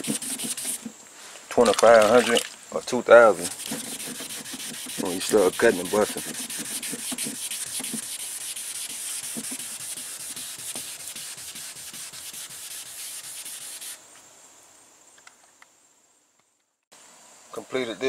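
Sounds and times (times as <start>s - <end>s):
wet sandpaper rubbing on car paint: 0.0s - 0.9s, 3.4s - 14.0s.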